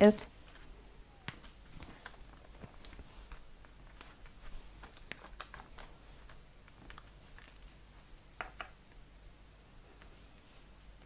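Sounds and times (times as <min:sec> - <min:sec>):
paper rustling: 0:01.3 - 0:07.9.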